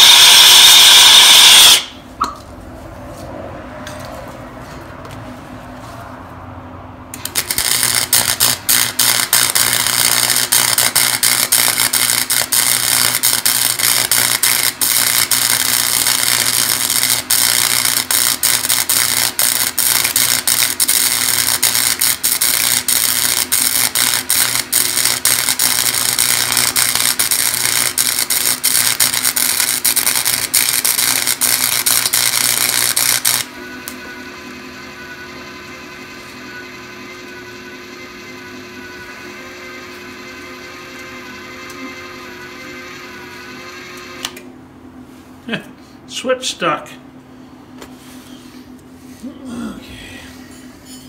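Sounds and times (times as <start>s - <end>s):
welding arc crackling: 0.0s - 2.0s, 7.2s - 34.1s.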